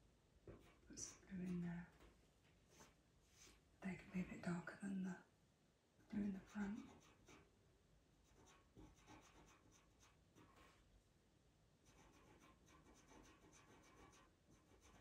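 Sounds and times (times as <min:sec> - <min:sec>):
pencil scratching on paper: 0:00.5 - 0:02.1, 0:06.2 - 0:07.5, 0:08.2 - 0:10.8, 0:11.8 - 0:15.0.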